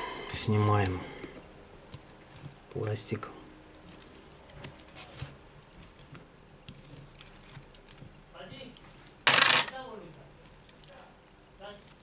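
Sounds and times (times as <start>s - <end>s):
plastic film ticks and crackles: 1.8s - 9.2s, 9.8s - 12.0s.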